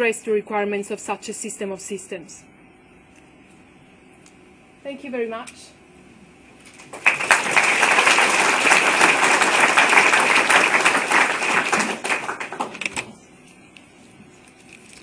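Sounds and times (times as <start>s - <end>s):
audience applauding: 6.8s - 13.2s.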